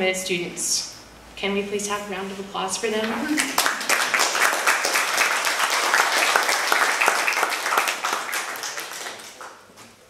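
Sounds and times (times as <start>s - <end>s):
audience applauding: 3.4s - 9.7s.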